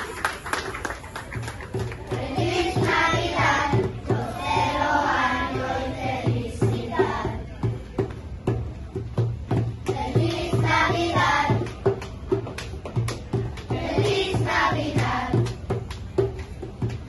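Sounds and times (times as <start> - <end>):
steady beat: 1.6 - 17.0
children's choir singing: 2.1 - 7.4, 9.9 - 11.9, 13.7 - 15.6.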